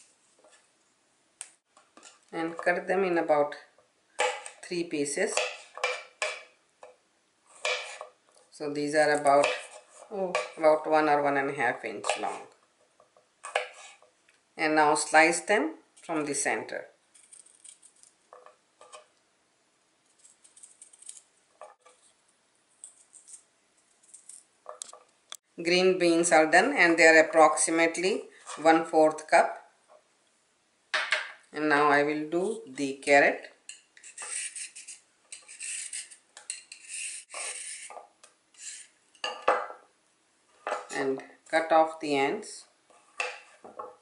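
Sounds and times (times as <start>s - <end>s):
peeler scraping carrot: 34.0s - 39.0s.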